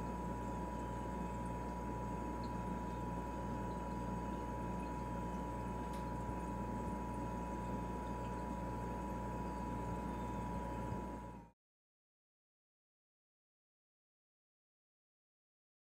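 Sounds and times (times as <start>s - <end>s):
refrigerator humming: 0.0s - 11.6s.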